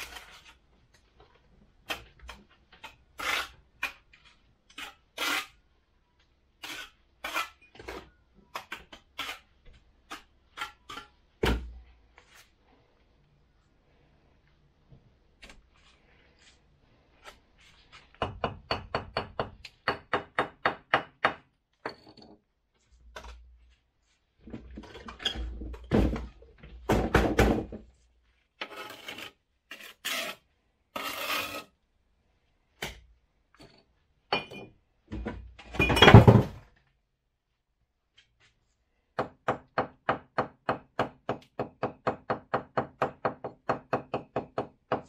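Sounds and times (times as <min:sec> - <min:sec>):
brick and mortar scraping: 0:00.0 - 0:01.1, 0:01.9 - 0:05.6, 0:28.6 - 0:31.8.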